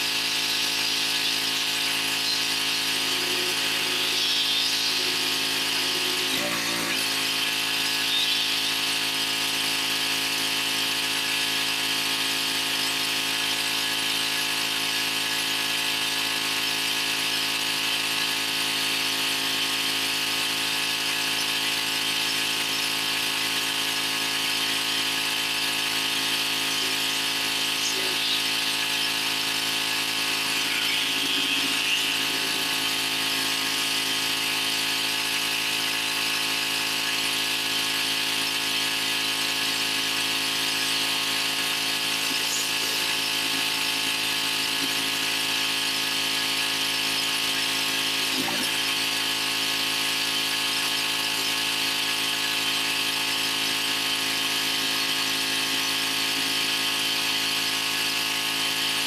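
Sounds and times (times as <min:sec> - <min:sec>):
pressure washer running: 0:00.0 - 0:59.0.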